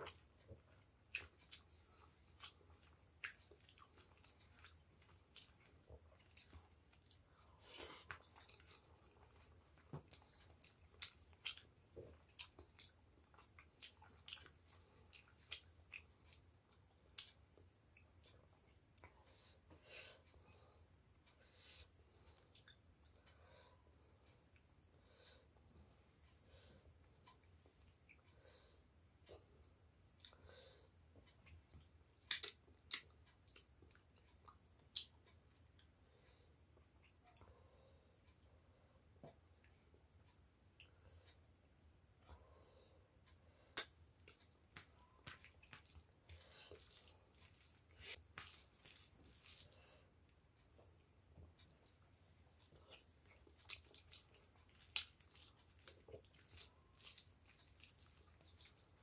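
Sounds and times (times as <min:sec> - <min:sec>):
chewing mouth clicks and smacks: 0:00.0 - 0:16.5, 0:31.4 - 0:35.2, 0:50.7 - 0:59.0
rice squishing by hand: 0:43.7 - 0:59.0.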